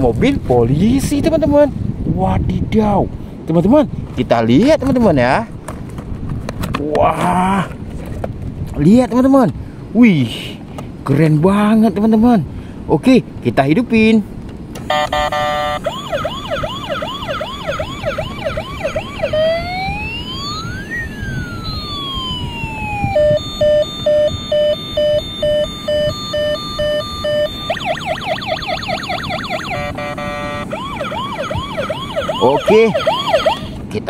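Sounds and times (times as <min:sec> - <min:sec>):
toy siren beeping: 0:14.9 - 0:33.7
toy siren yelp: 0:14.9 - 0:33.7
toy siren wail: 0:14.9 - 0:33.8.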